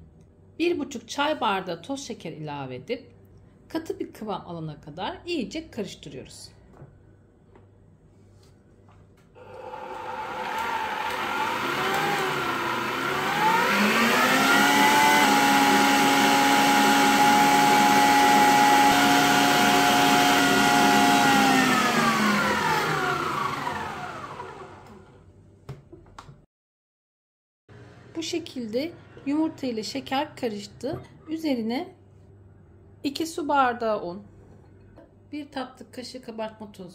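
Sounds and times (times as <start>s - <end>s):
stand mixer motor whine: 9.4s - 25.2s.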